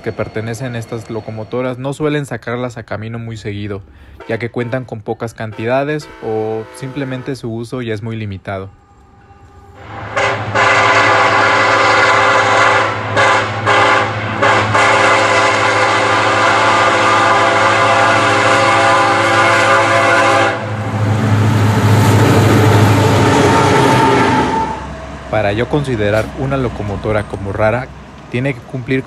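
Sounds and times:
train rumbling past: 0.0 - 29.0
locomotive air horn chord: 4.0 - 4.9, 5.5 - 7.6, 8.4 - 25.0.

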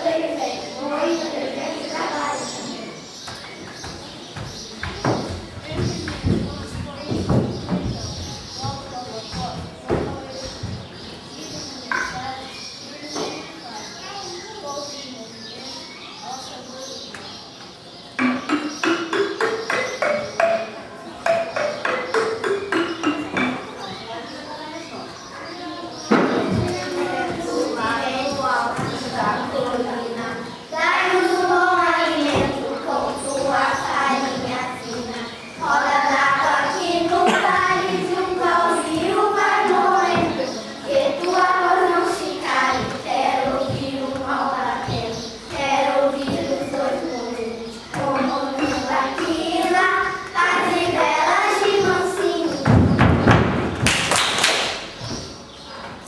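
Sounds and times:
children singing: 0.0 - 3.2, 18.2 - 24.0, 25.9 - 53.6.

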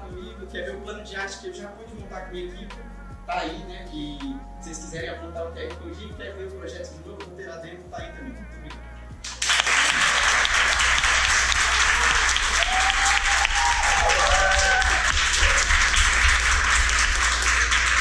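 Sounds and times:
audience applauding: 9.3 - 18.0.

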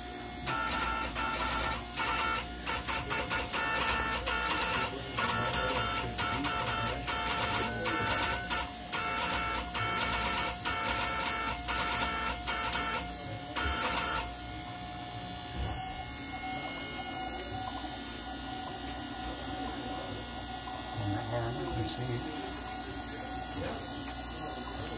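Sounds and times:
steady hum: 0.0 - 20.1
buzzy morse code tone: 0.4 - 14.5.

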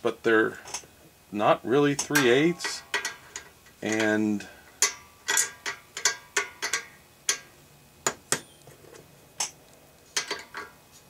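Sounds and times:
metal wrenches clinking: 1.9 - 7.5, 10.2 - 10.8.

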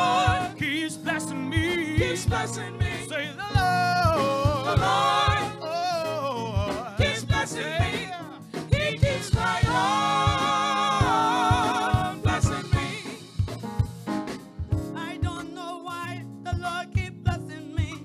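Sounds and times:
gospel choir singing: 0.0 - 0.9, 1.6 - 13.6
live band with drums and bass: 0.0 - 18.0.

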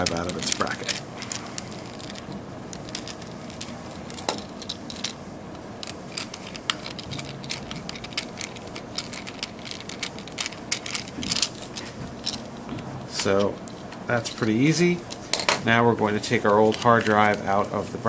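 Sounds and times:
loose screws rattling: 0.0 - 5.2, 5.8 - 12.6.

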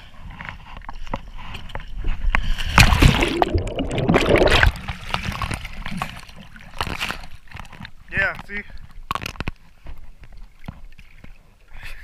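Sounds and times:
water sloshing and gurgling: 0.1 - 11.8
loud splash: 2.8 - 5.4.

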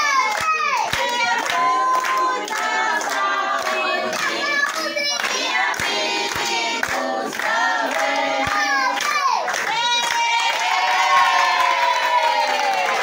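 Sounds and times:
group singing a birthday song: 0.0 - 9.7.

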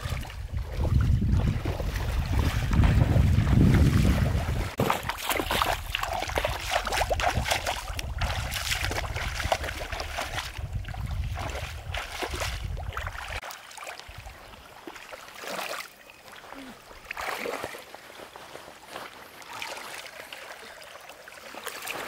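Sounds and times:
wind rumbling on microphone: 0.0 - 13.4
feet splashing through muddy water: 0.0 - 22.0.

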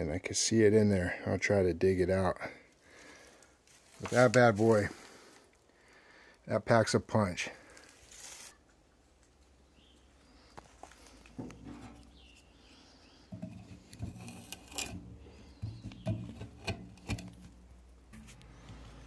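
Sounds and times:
knife scraping wooden block: 13.3 - 17.5.

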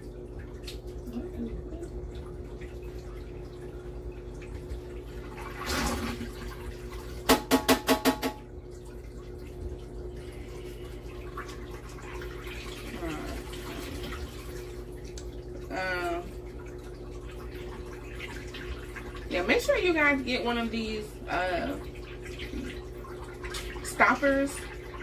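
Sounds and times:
water trickling: 0.0 - 7.3, 8.3 - 25.0
washing machine humming: 0.0 - 25.0
sharp ringing knocks: 7.3 - 8.4.

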